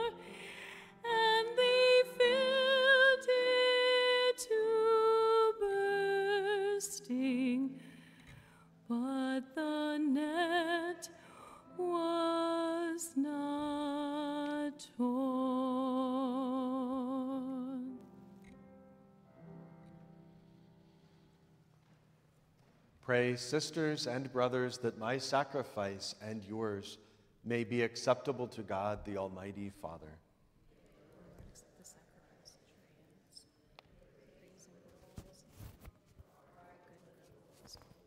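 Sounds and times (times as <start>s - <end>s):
person singing a hymn with vibrato: 0.0s - 8.0s, 8.9s - 18.0s
quiet low accompaniment: 0.0s - 38.0s.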